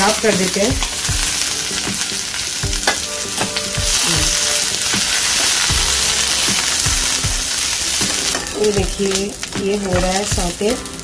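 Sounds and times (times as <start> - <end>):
onions sizzling in a frying pan: 0.0 - 11.0
steel spoon scraping a pan: 3.2 - 10.1.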